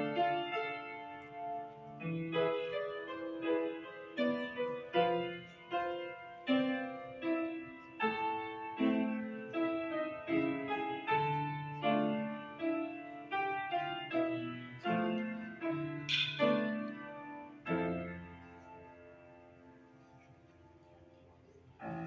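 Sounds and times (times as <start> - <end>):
slow solo piano piece: 0.0 - 22.0.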